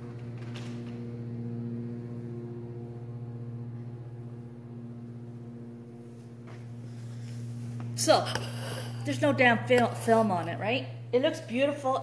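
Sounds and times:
steady low electrical hum: 0:00.0 - 0:12.0.

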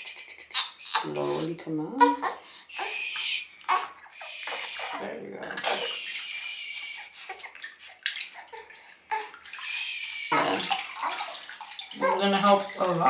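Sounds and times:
bathwater sloshing and trickling: 0:02.3 - 0:13.0
small water splashes: 0:02.6 - 0:13.0.

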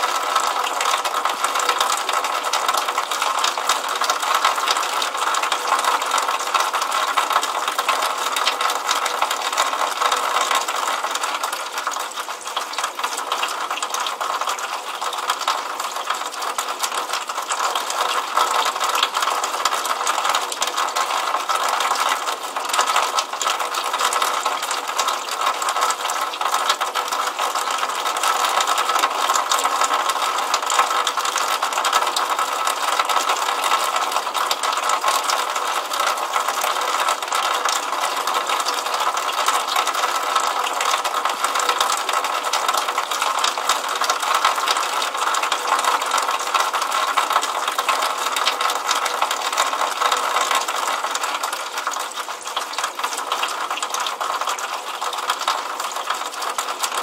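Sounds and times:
rainwater splashing from downspout: 0:00.0 - 0:57.0.

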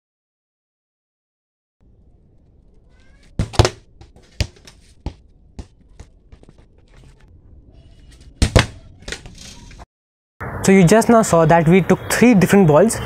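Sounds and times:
football hitting plastic bottle: 0:03.3 - 0:06.6, 0:08.4 - 0:09.3
sharp knocks: 0:03.4 - 0:06.6.

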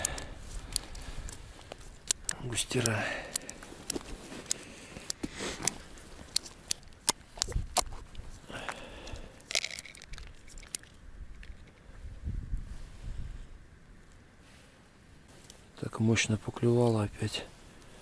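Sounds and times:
tackle clicks and ice crunches: 0:00.0 - 0:11.8
waterproof suit rustling: 0:03.6 - 0:06.7.

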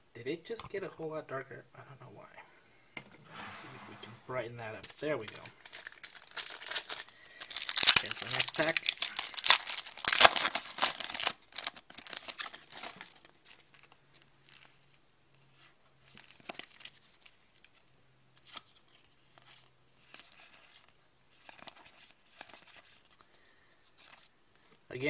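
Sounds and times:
cards rustling and tapping: 0:04.8 - 0:14.9, 0:18.4 - 0:23.3
foil wrapper tearing and crinkling: 0:05.2 - 0:13.9.

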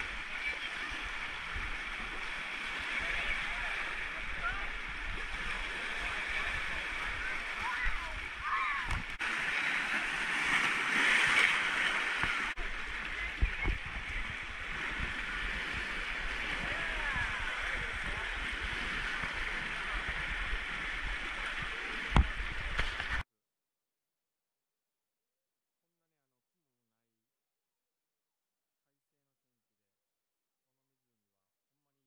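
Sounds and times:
small waves splashing against rock: 0:00.0 - 0:23.2.

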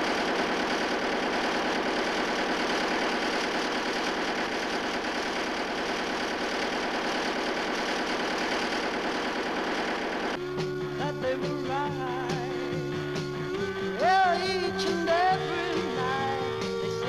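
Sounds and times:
large engine clatter: 0:00.0 - 0:10.4.

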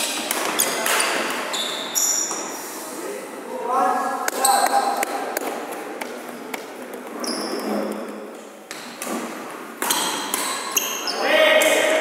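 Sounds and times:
shoes squeaking on wooden floor: 0:00.4 - 0:02.6, 0:07.0 - 0:08.9
racquet hitting shuttlecock: 0:08.7 - 0:11.0, 0:11.6 - 0:12.0.

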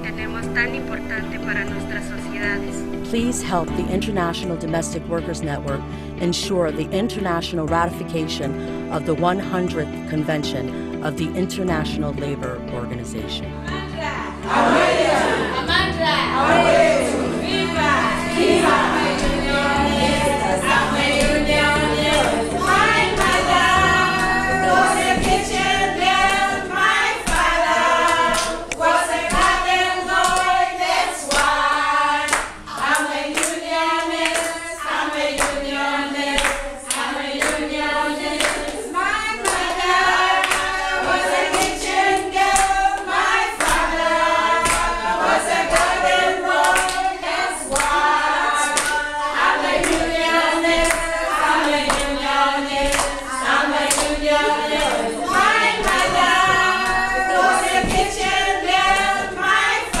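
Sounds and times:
group singing in chorus: 0:13.6 - 1:00.0
hand clapping in time: 0:21.1 - 0:24.5, 0:25.1 - 0:31.7, 0:32.3 - 0:34.6, 0:35.3 - 0:35.7, 0:36.3 - 0:37.7, 0:38.3 - 1:00.0.

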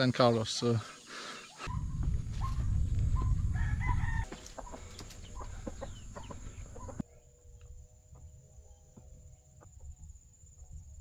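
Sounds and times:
footsteps on dirt trail: 0:01.6 - 0:07.0
wind rumble on microphone: 0:01.6 - 0:07.0
rooster crowing: 0:03.4 - 0:07.0.

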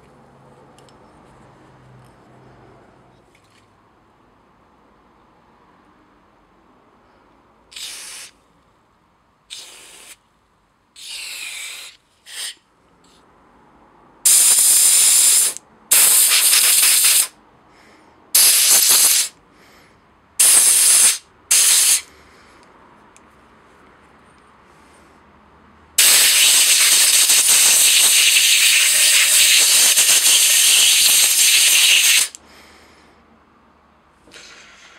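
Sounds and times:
aerosol spray hissing: 0:07.7 - 0:08.3, 0:09.5 - 0:10.2, 0:11.0 - 0:12.6, 0:14.3 - 0:17.3, 0:18.4 - 0:19.3, 0:20.4 - 0:22.1, 0:26.0 - 0:32.4.

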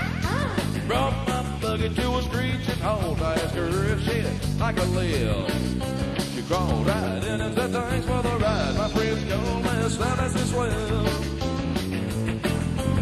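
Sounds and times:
rock band music: 0:00.0 - 0:13.0.

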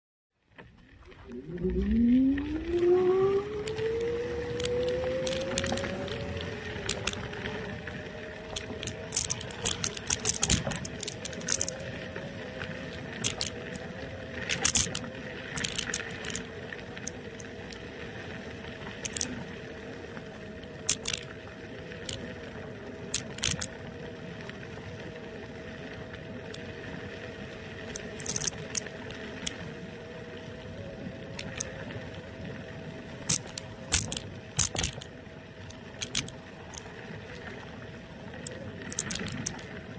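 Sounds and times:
electric scooter motor whining: 0:00.7 - 0:39.9
rattles and clicks: 0:03.5 - 0:17.8, 0:19.0 - 0:19.4, 0:20.8 - 0:21.3, 0:22.0 - 0:22.3, 0:23.1 - 0:23.7, 0:27.8 - 0:29.6, 0:31.3 - 0:31.8, 0:33.2 - 0:36.9, 0:38.4 - 0:39.9.

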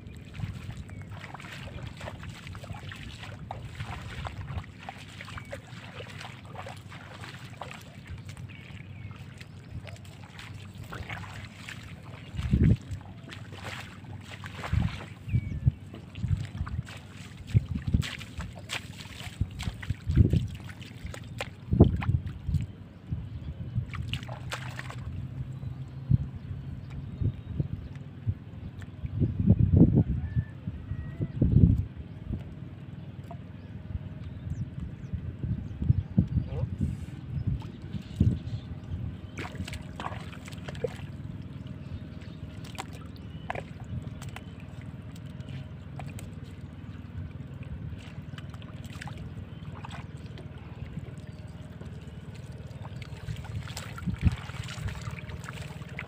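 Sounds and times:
bare feet sloshing through water: 0:00.0 - 0:29.2, 0:32.4 - 0:56.0
wind rumble on microphone: 0:00.0 - 0:56.0
hands stirring water: 0:47.9 - 0:56.0.

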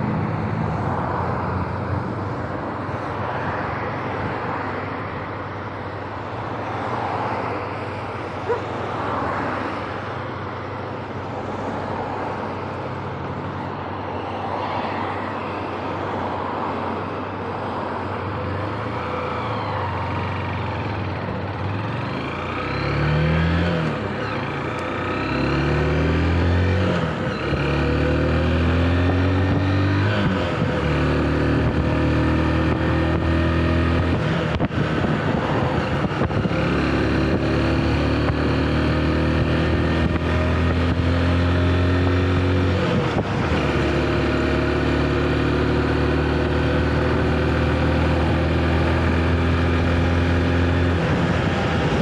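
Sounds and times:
motorcycle engine accelerating: 0:19.4 - 0:52.0.

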